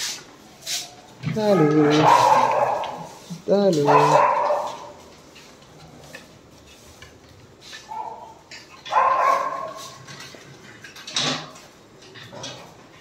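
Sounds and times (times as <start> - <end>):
dogs barking: 1.5 - 3.2, 3.8 - 5.1, 7.8 - 10.0.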